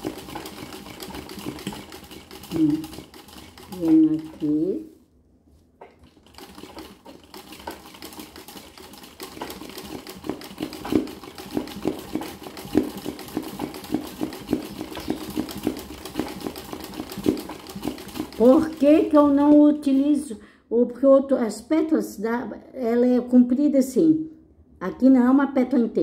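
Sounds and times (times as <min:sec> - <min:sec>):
sewing machine needle clattering: 0:00.0 - 0:04.6, 0:05.9 - 0:20.1.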